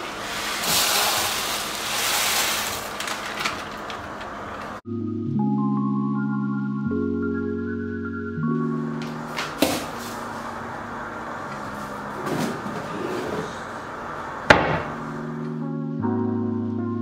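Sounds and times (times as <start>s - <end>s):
rustling and shifting: 9.2s - 14.0s.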